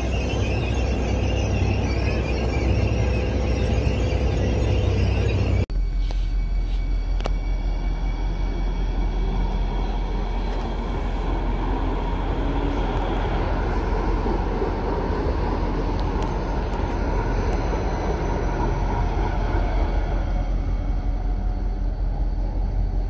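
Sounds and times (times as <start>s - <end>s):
light rail car running: 0.0s - 23.0s.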